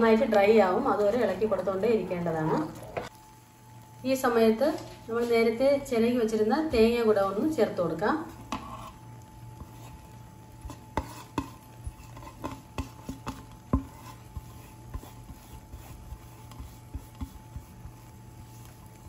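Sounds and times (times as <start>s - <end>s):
spatula scraping a cooking pan: 8.2s - 19.0s.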